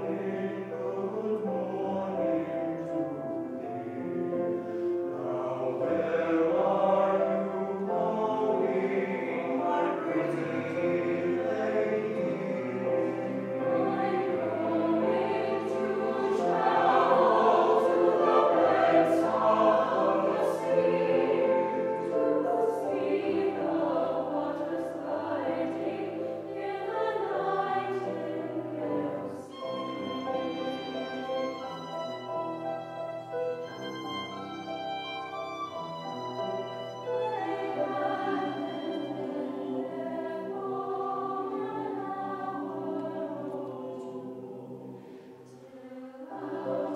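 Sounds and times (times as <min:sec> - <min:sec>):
mixed choir singing: 0:00.0 - 0:46.9
violin playing: 0:09.0 - 0:43.0.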